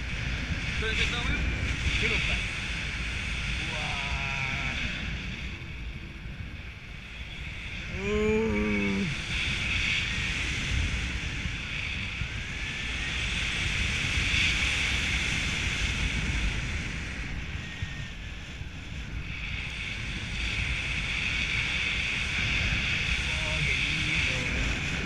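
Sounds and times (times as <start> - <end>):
wind rushing over microphone: 0.0 - 25.0.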